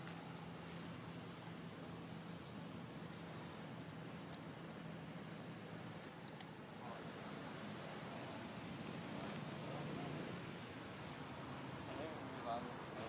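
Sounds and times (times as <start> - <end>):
insect drone: 0.0 - 13.0
faint ticks: 2.4 - 6.6.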